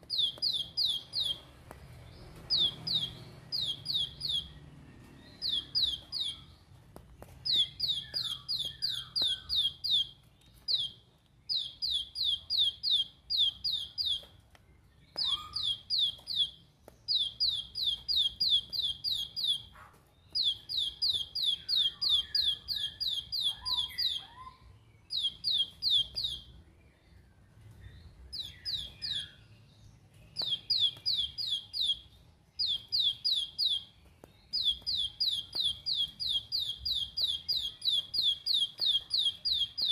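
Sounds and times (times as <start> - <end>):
faint bird twittering: 0.0 - 39.9
bird singing sharp high notes: 2.1 - 6.6, 7.5 - 14.3, 15.0 - 19.7, 20.3 - 26.6, 30.3 - 39.9.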